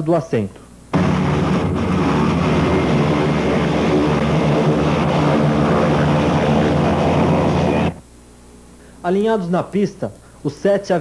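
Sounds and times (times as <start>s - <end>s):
turboprop engines droning: 0.8s - 8.1s.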